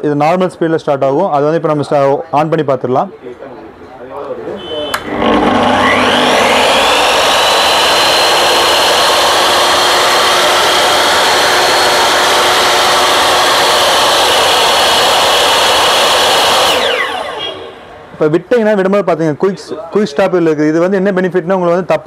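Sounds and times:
mitre saw motor whining: 0:04.6 - 0:18.1.

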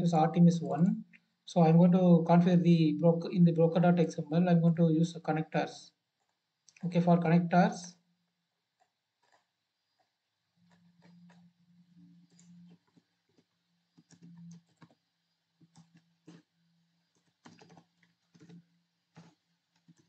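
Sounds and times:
keyboard typing: 0:08.8 - 0:16.5, 0:17.1 - 0:20.0.

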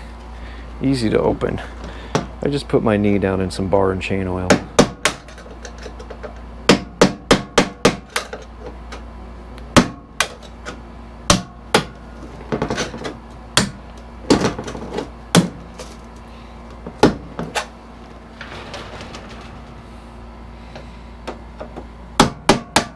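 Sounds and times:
hammer striking wooden crate: 0:04.5 - 0:05.4, 0:06.7 - 0:08.3, 0:09.7 - 0:10.4, 0:11.3 - 0:13.0, 0:13.6 - 0:14.7, 0:15.3 - 0:15.7, 0:16.9 - 0:17.6, 0:21.3 - 0:22.9.

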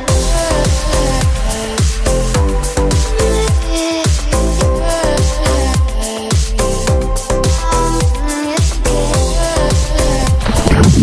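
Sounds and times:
electronic music with steady beat: 0:00.0 - 0:11.0.

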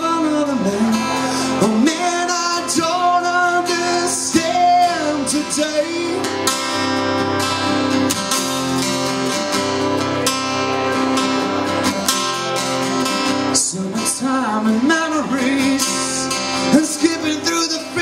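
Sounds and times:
man singing: 0:00.0 - 0:06.8, 0:13.3 - 0:18.0
acoustic guitar strumming: 0:00.0 - 0:18.0.

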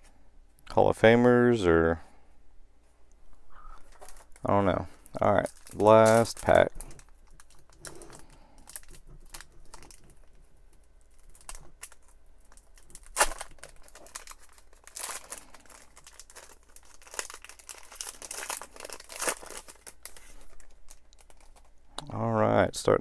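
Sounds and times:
plastic wrapper crinkling and tearing: 0:03.8 - 0:04.5, 0:05.1 - 0:21.9.

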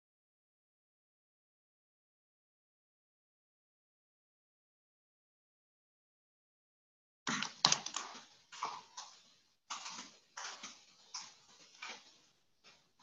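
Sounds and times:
keyboard typing: 0:07.3 - 0:08.9.

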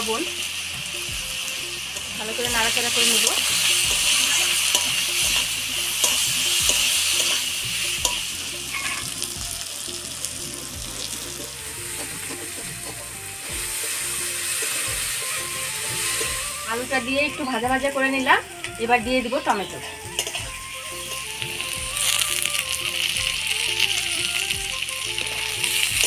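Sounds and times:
vegetables sizzling in oil: 0:00.0 - 0:26.0
metal spatula scraping: 0:01.8 - 0:09.3, 0:10.4 - 0:17.6, 0:19.2 - 0:22.7.

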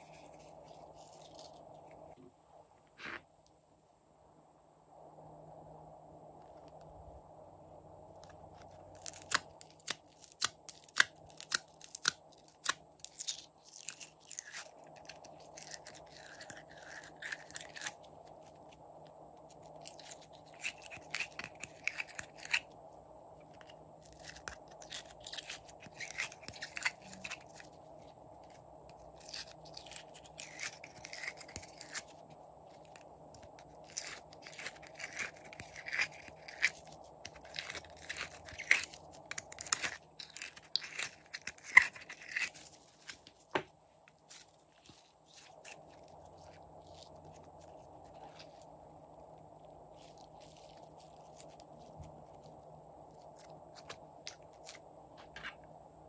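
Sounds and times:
slime crackling and popping: 0:08.2 - 0:18.7, 0:28.4 - 0:43.4.

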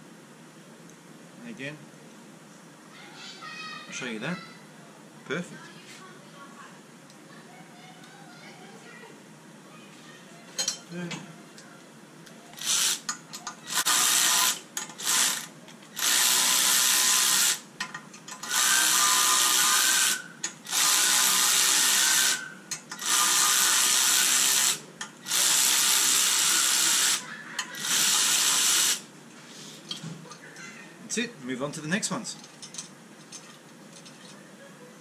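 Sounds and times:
handheld power tool bursts: 0:12.6 - 0:13.1, 0:13.7 - 0:17.7, 0:18.4 - 0:29.1.

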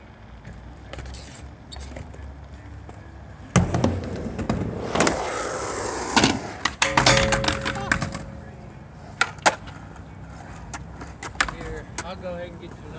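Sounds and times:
skateboard wheels rolling: 0:00.2 - 0:12.9
skateboard clacking on concrete: 0:06.6 - 0:12.9.

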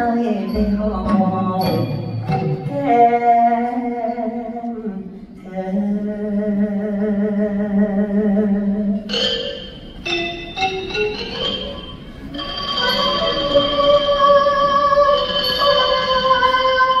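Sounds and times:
person singing with vibrato: 0:00.0 - 0:09.8, 0:12.3 - 0:17.0
orchestral accompaniment: 0:00.3 - 0:03.5, 0:09.1 - 0:17.0.

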